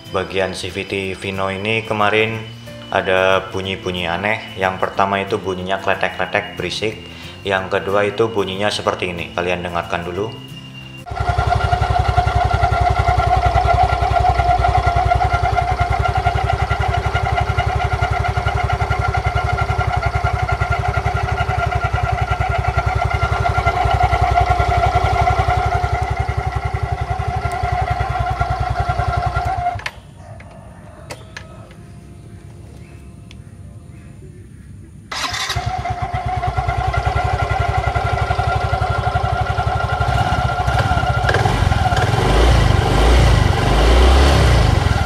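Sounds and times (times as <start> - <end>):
transmission whine: 0.0 - 30.2, 31.1 - 45.0
scooter engine pulsing: 0.0 - 34.0, 35.1 - 45.0.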